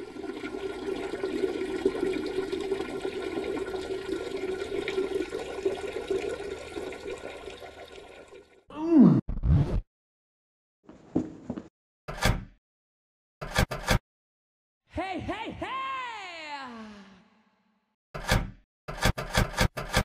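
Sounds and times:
toilet flushing: 0.0s - 8.7s.

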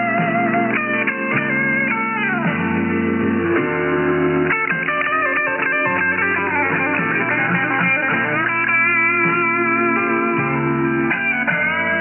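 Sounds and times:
narrow radio guitar music: 0.0s - 12.0s.

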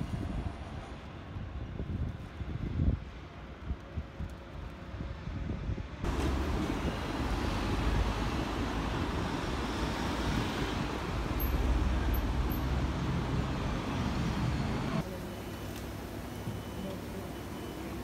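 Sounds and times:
tram passing: 0.0s - 1.8s, 6.0s - 15.3s
traffic rumble: 0.0s - 18.0s
cars passing: 6.1s - 15.0s.

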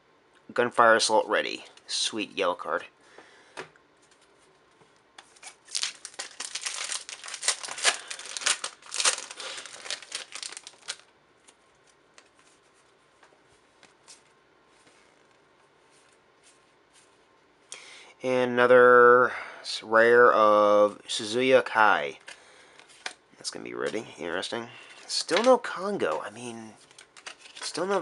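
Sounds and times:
cards rustling: 5.2s - 15.0s, 24.9s - 28.0s
wrapper tearing and crinkling: 5.4s - 11.1s.

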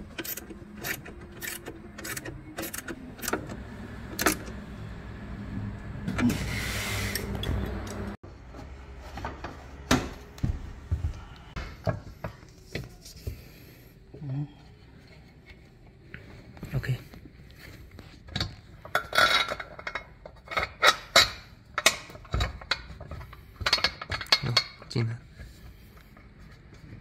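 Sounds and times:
parts being handled: 14.8s - 27.0s.

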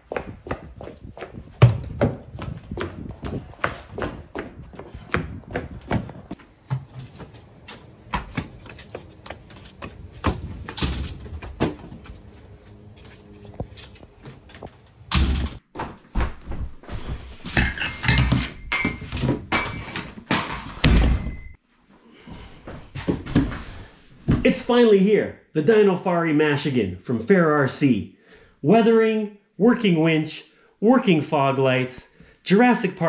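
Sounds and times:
footsteps: 0.0s - 19.4s.

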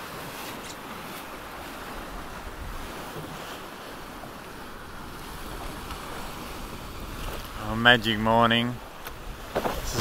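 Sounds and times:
water rushing along boat hull: 0.0s - 10.0s
wind on microphone: 5.0s - 7.6s, 9.2s - 10.0s.

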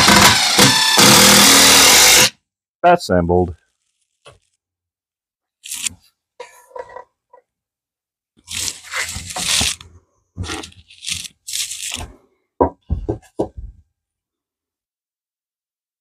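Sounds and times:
sharp knocks: 12.6s - 13.8s.

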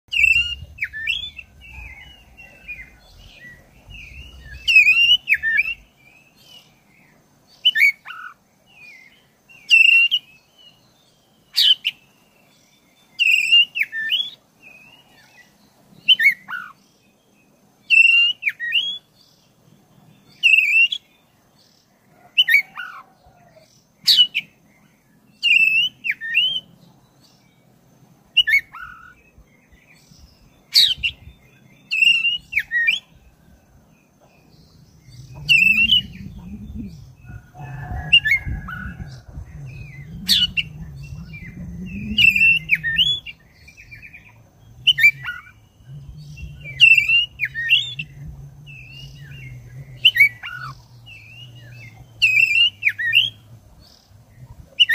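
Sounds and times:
bird singing whistled phrases: 35.0s - 53.4s.

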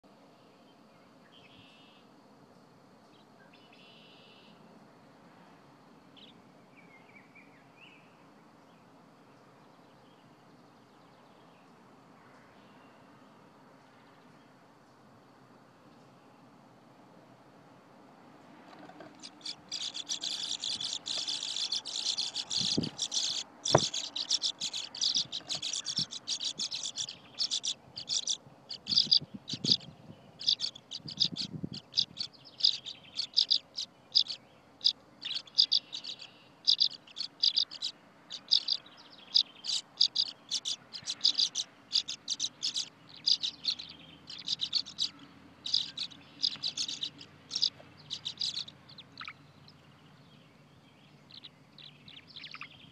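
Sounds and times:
swallows twittering and chirping: 18.8s - 52.9s
sharp knocks: 23.7s - 24.0s.

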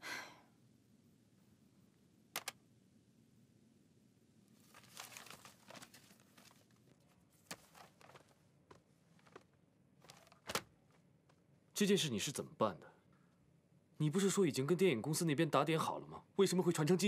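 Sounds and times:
soft rustling and crinkling: 4.4s - 11.5s.

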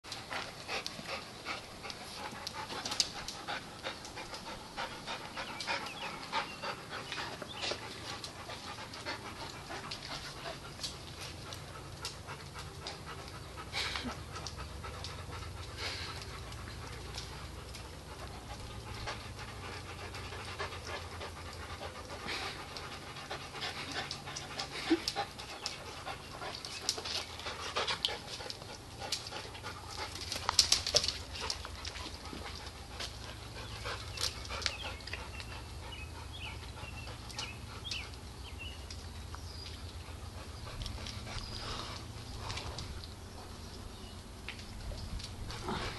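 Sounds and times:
dog panting heavily: 0.1s - 38.8s, 39.9s - 43.6s
dogs tussling with clicks and scuffs: 0.1s - 45.9s.

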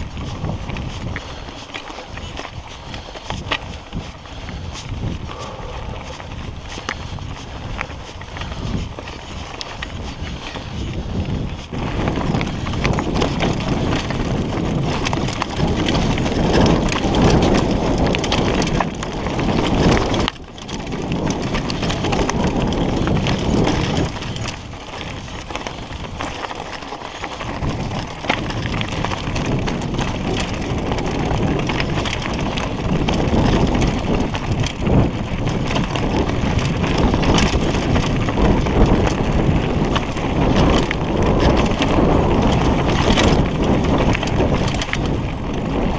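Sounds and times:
bike clattering and rattling: 0.0s - 45.9s
tyres crunching over gravel: 0.0s - 45.9s.

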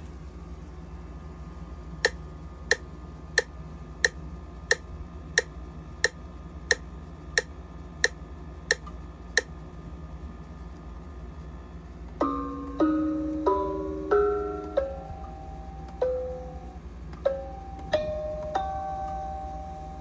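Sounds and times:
metronome clicks: 3.4s - 4.8s, 5.4s - 6.8s, 7.4s - 9.5s, 12.2s - 16.5s, 17.1s - 19.3s.

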